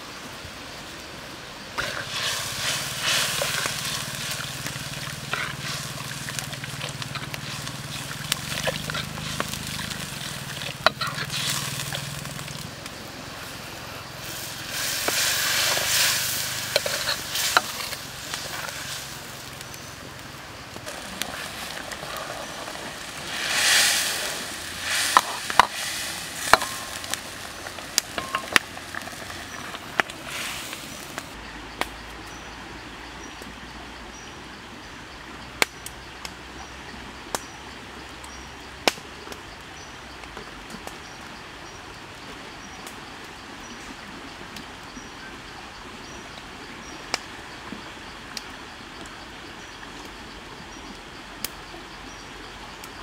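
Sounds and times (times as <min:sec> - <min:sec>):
curry sizzling in a wok: 0:01.8 - 0:12.7, 0:14.1 - 0:20.1, 0:20.8 - 0:31.3
loud rush: 0:20.9 - 0:28.3.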